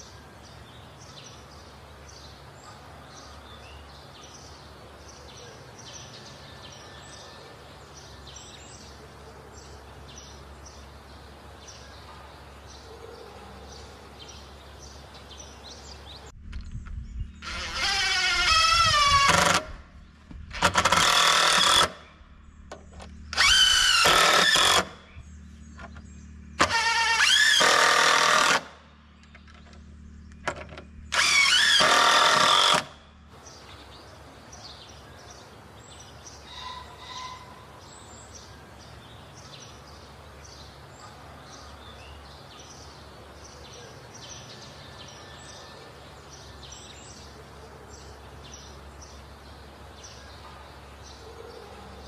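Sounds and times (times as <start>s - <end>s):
birds chirping: 0.0s - 52.0s
cordless drill spinning up: 23.3s - 24.9s, 26.6s - 28.6s, 31.1s - 32.9s.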